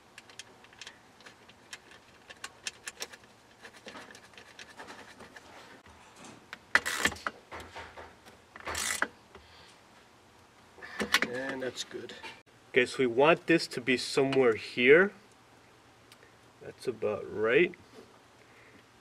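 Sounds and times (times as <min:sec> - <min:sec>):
socket ratchet rasping: 0:08.6 - 0:09.1.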